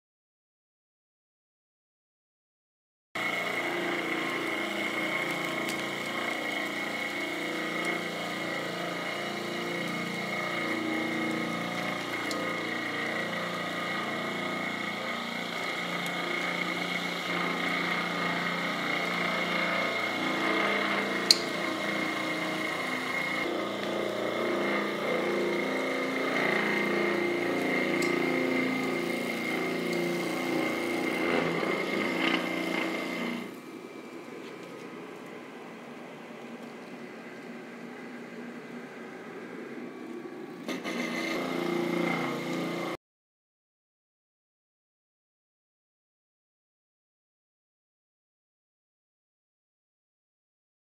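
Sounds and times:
concrete floor grinder whining: 3.2s - 43.0s.

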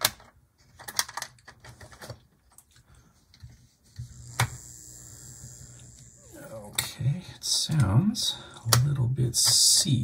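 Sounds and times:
small electric motor humming: 4.0s - 6.7s.

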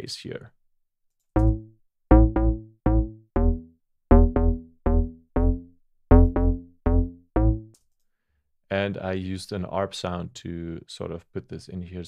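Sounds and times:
synth bass line: 1.4s - 7.7s.

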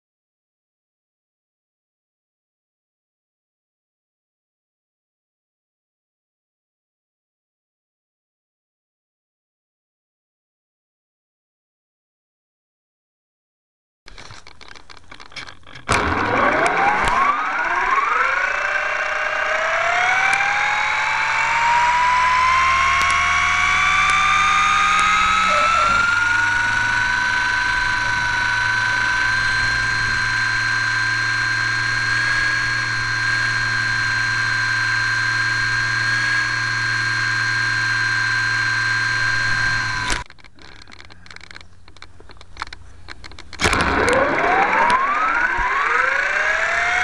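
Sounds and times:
model plane motor whining: 15.3s - 47.0s.

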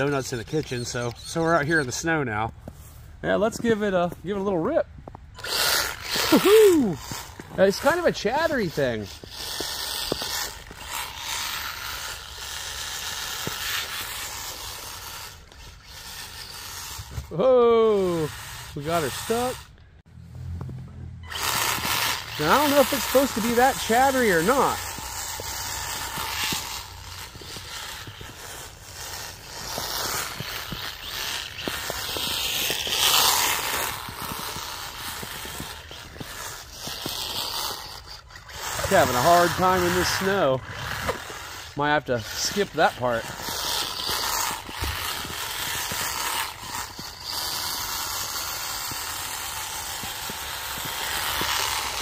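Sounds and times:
rc buggy gearbox chatter: 0.0s - 2.4s, 5.3s - 19.8s, 21.2s - 52.0s.

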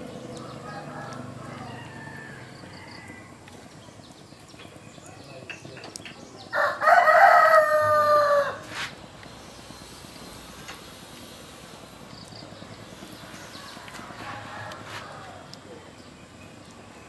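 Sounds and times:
rooster crowing: 0.4s - 3.4s, 6.5s - 8.7s, 13.5s - 15.6s.

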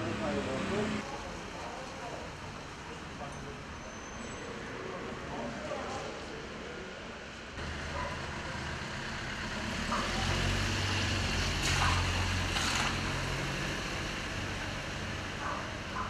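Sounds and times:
tyre noise on wet street: 0.0s - 16.0s
van engine hum: 7.6s - 16.0s.

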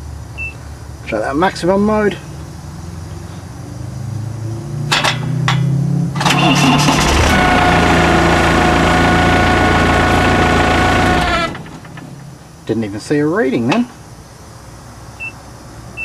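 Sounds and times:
diesel engine running: 6.1s - 12.6s
starter motor cranking: 6.2s - 12.0s
steady whine: 6.3s - 12.8s.

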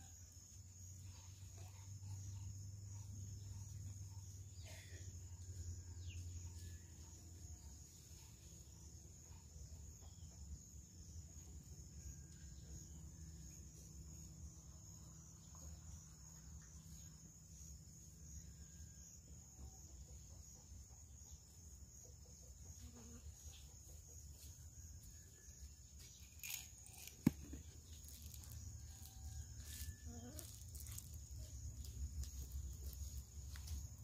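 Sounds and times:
high-pitched insect drone: 25.2s - 34.0s.

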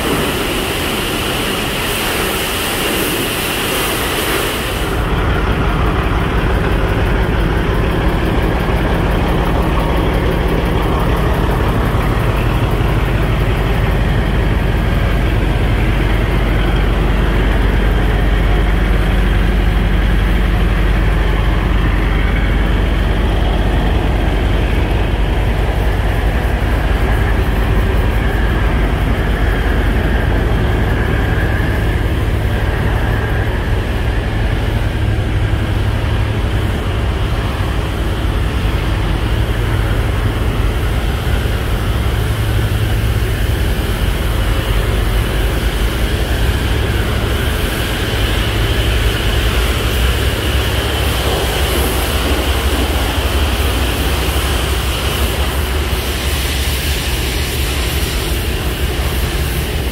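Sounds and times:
pressure washer spray hissing: 0.0s - 5.0s, 47.5s - 59.9s
truck diesel engine idling: 4.7s - 59.9s.

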